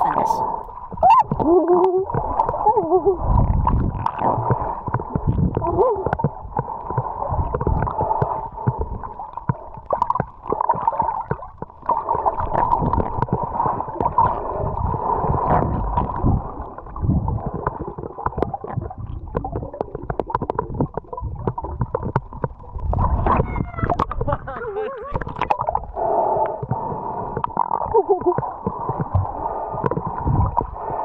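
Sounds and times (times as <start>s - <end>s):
water gurgling and rushing: 0.0s - 31.0s.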